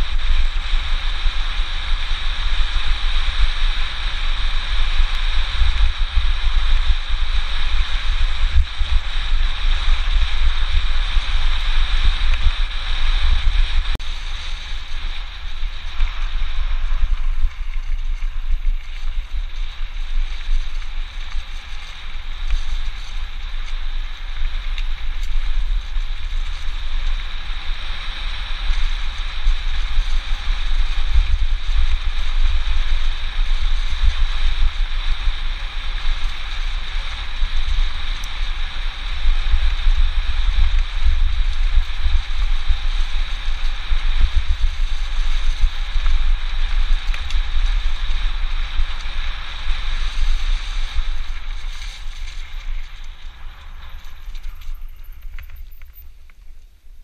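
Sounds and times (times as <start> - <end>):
wind buffeting microphone: 0.0 - 57.0
tyres rolling on gravel: 14.0 - 27.2, 47.1 - 56.4.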